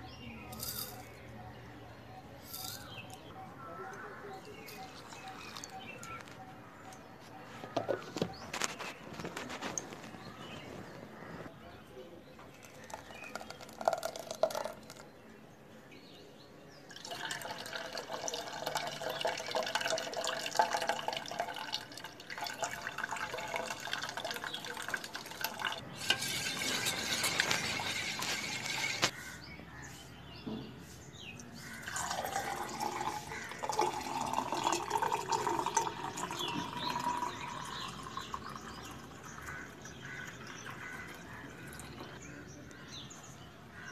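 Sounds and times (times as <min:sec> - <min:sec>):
juice filling a glass: 0:12.6 - 0:15.0, 0:16.9 - 0:29.0, 0:31.8 - 0:42.0
juice pouring into a steel bowl: 0:12.6 - 0:15.0, 0:16.9 - 0:29.1, 0:31.8 - 0:42.0.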